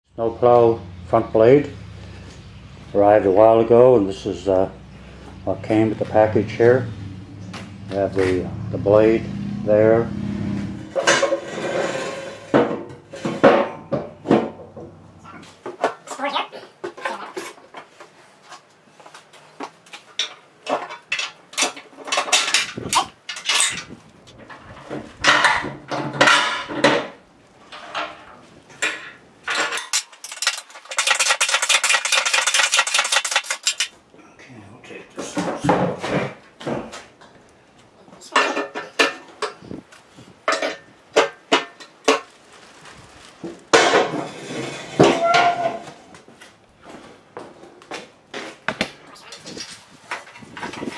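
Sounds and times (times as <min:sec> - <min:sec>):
metal parts clinking and knocking: 0:20.2 - 0:27.1, 0:28.8 - 0:34.0.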